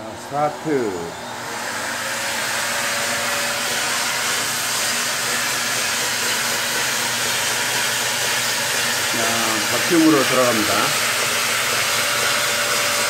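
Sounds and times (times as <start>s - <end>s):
vacuum cleaner running: 0.0s - 13.0s.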